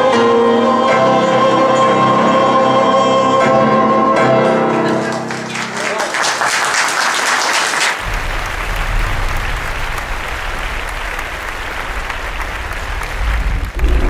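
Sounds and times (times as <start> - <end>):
audience applauding: 4.7 - 14.0
low rumble: 8.0 - 14.0.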